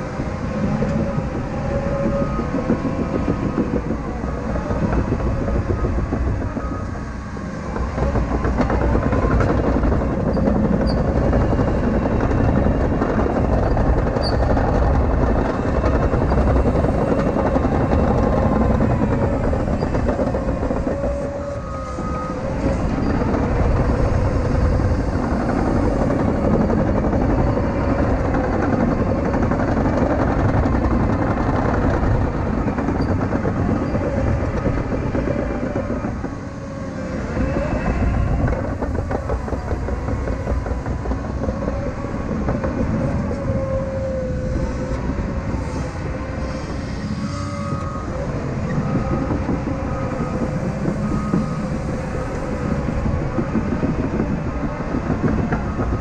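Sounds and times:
steel tracks clattering: 0:00.0 - 0:56.0.

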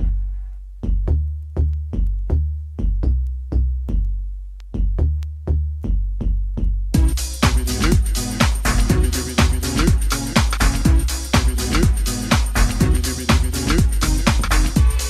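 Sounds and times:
house music: 0:07.0 - 0:15.0.

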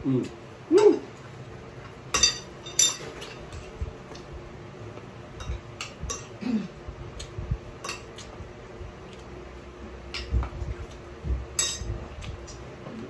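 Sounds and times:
cutlery clinking on a plate: 0:02.2 - 0:03.4.

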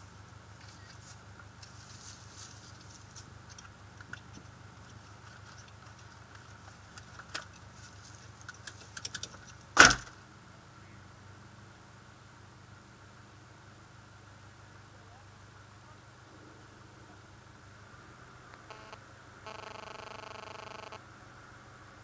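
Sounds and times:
car engine idling: 0:00.0 - 0:19.5
rustling: 0:00.5 - 0:09.7
small clicks: 0:08.4 - 0:09.6.

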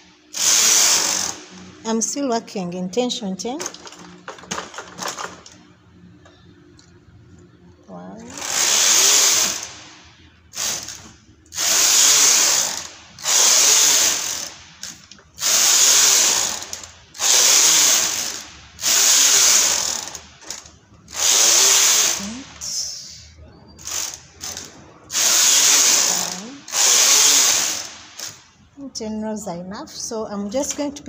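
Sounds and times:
knitting machine carriage rattling: 0:03.5 - 0:05.6.

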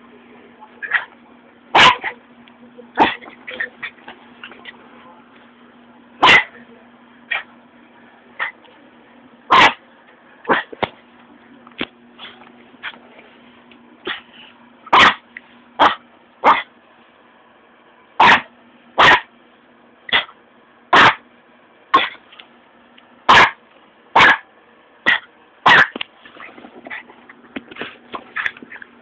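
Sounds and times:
dog barking: 0:00.8 - 0:01.1, 0:01.7 - 0:02.2, 0:03.0 - 0:03.7, 0:06.2 - 0:06.6, 0:09.5 - 0:09.8, 0:10.5 - 0:10.7, 0:14.9 - 0:15.2, 0:15.8 - 0:16.7, 0:18.2 - 0:19.3, 0:20.1 - 0:21.2, 0:21.9 - 0:22.2, 0:23.3 - 0:23.6, 0:24.2 - 0:26.0.

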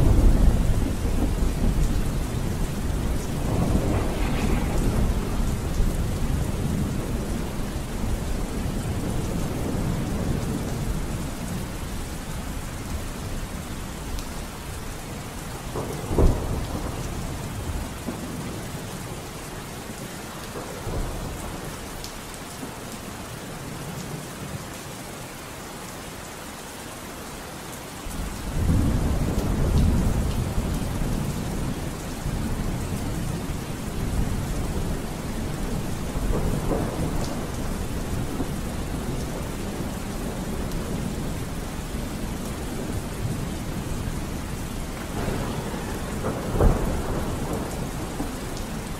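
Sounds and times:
sharp thunder clap: 0:00.0 - 0:08.2, 0:45.0 - 0:48.9
rolling thunder rumble: 0:00.0 - 0:13.7, 0:14.4 - 0:19.3, 0:28.1 - 0:48.9
steady rain: 0:00.0 - 0:48.9.

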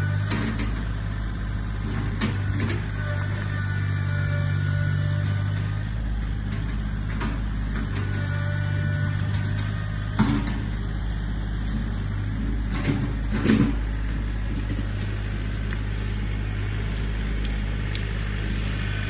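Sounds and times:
tractor diesel engine running: 0:00.0 - 0:19.0
knocks and cracks of brush: 0:12.7 - 0:19.0.

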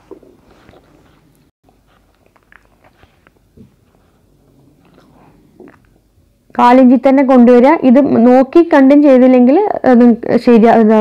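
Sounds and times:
fabric rustling: 0:00.0 - 0:02.0.

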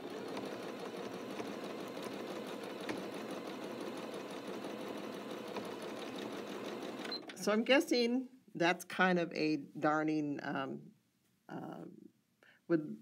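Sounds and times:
sewing machine running: 0:00.0 - 0:07.3.

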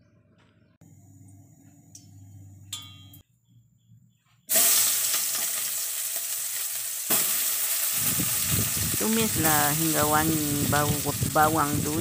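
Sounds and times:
onions sizzling in hot oil: 0:04.5 - 0:12.0.

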